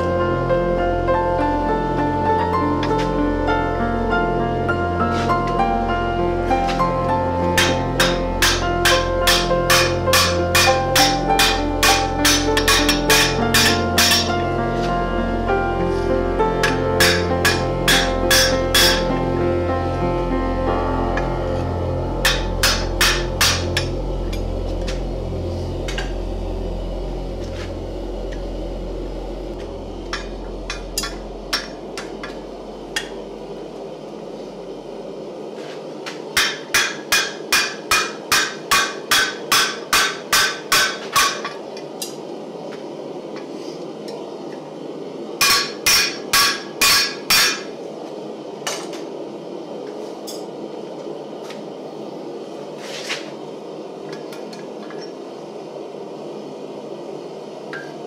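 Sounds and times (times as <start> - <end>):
hammer striking metal on anvil: 7.6 - 14.4, 16.6 - 19.1, 22.2 - 25.0, 30.1 - 32.4, 36.4 - 41.6, 45.4 - 47.7.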